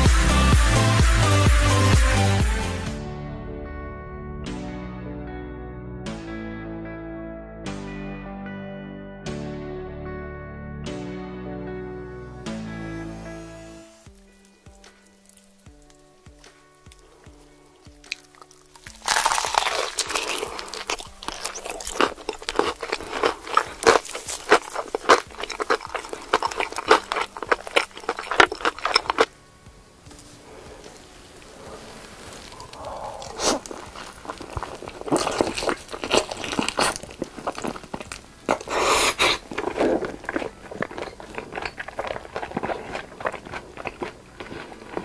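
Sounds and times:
crunching of crispy food: 14.1s - 29.4s, 30.1s - 45.0s
wet chewing of fried chicken: 14.7s - 29.4s, 30.8s - 45.0s
lip smacking: 16.9s - 29.3s, 30.8s - 45.0s.

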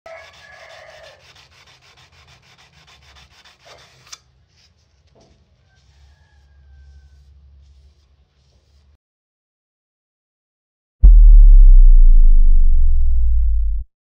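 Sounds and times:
sandpaper rubbing on steel blade: 0.1s - 9.0s.

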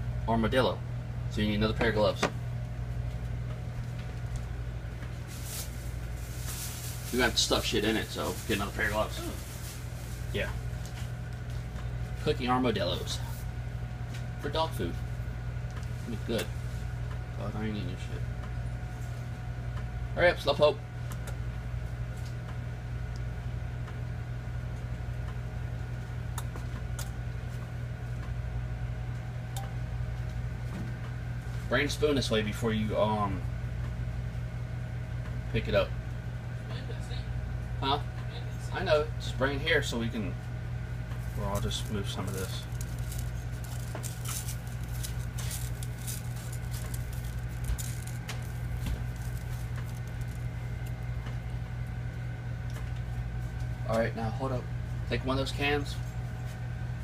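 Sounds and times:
low electrical hum: 0.0s - 57.0s
dry rice crackling in metal pan: 41.3s - 51.0s.

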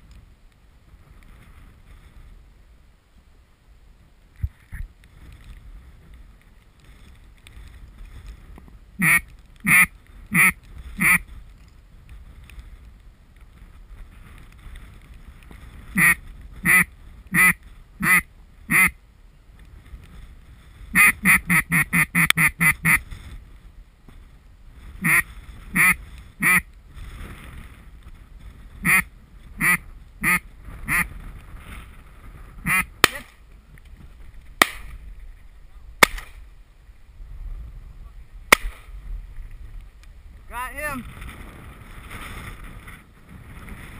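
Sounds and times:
duck call quacking: 9.0s - 11.2s, 16.0s - 19.0s, 20.9s - 23.0s, 25.0s - 26.6s, 28.8s - 31.1s, 32.6s - 32.9s.

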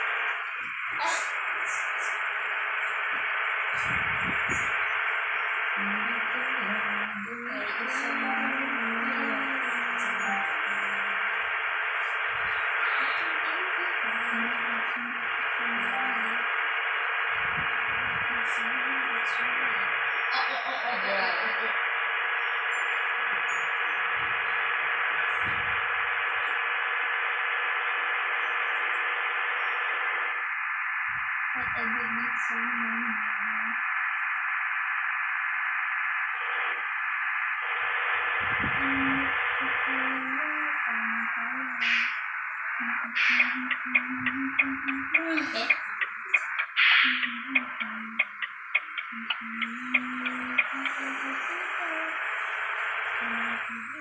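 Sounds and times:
deep hum: 0.0s - 20.3s, 20.9s - 29.8s, 30.4s - 54.0s
road and wind noise: 2.6s - 5.8s, 16.6s - 18.4s, 24.0s - 26.4s, 38.4s - 39.5s.

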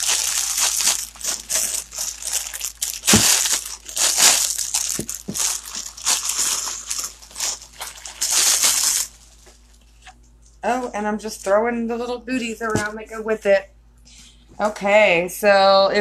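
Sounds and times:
plastic bag crinkling: 0.0s - 10.1s.

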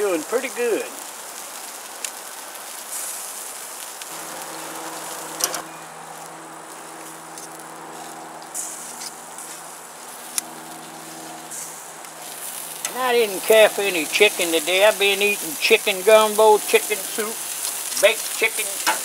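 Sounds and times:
meat sizzling on a grill: 0.0s - 19.0s
low steady hum: 4.1s - 17.7s.

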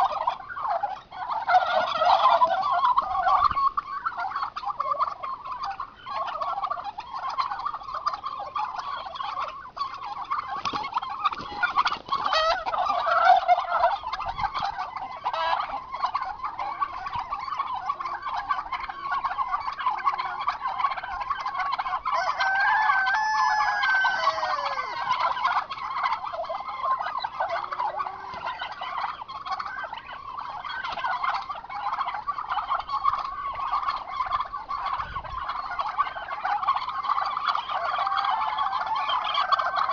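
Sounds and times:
turkeys gobbling: 0.0s - 39.9s.

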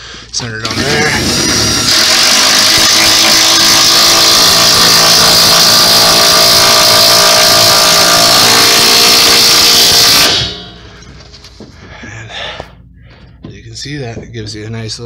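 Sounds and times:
impact driver running: 0.6s - 11.0s.

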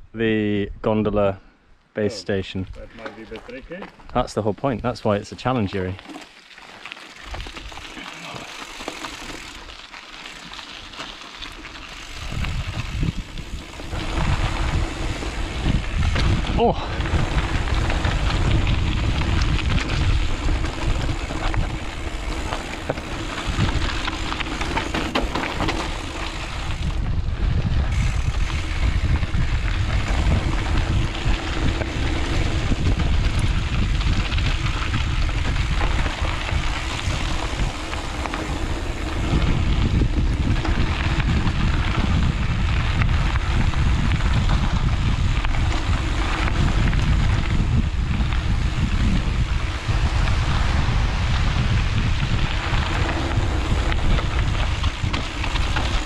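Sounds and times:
bike tyres rumbling: 2.0s - 56.0s
bike rattling over bumps: 3.0s - 56.0s
wind rushing over microphone: 11.9s - 56.0s.

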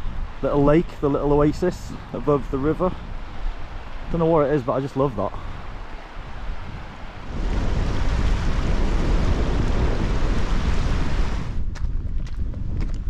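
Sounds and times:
flowing mountain stream: 0.0s - 11.6s
wind buffeting microphone: 0.0s - 13.0s
footsteps crunching on slate: 11.6s - 13.0s.

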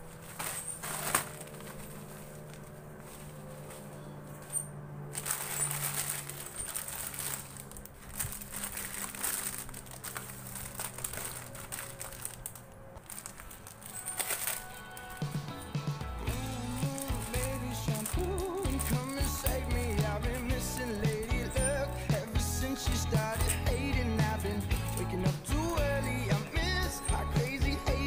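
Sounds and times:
plastic bags crinkling: 0.0s - 28.0s.

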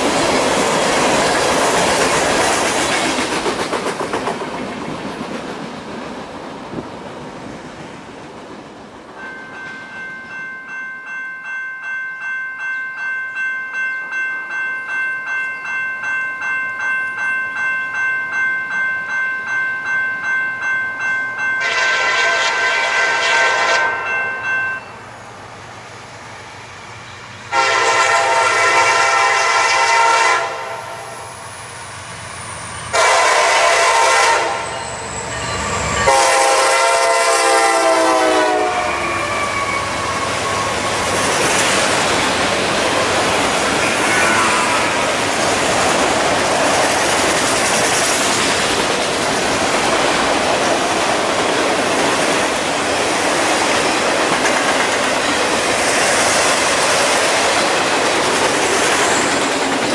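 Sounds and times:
locomotive bell ringing: 9.1s - 25.3s, 27.2s - 55.9s
locomotive air horn blasts: 21.6s - 24.2s, 27.5s - 31.2s, 32.9s - 35.0s, 36.0s - 40.8s.

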